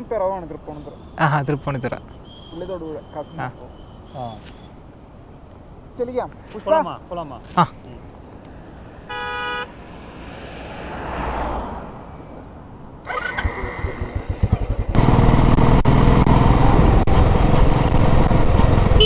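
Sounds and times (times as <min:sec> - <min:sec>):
motorcycle engine running: 0:13.4 - 0:19.0.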